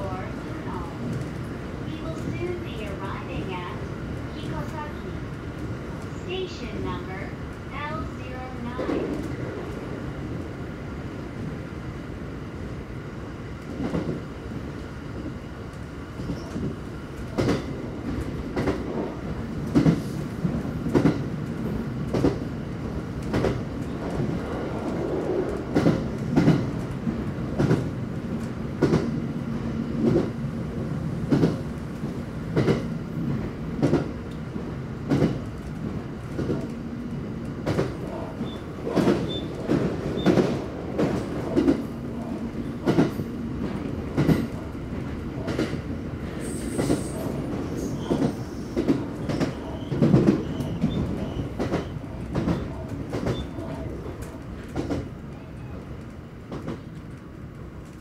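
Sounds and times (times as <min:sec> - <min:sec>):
train wheels clickety-clack: 0:13.6 - 0:58.0.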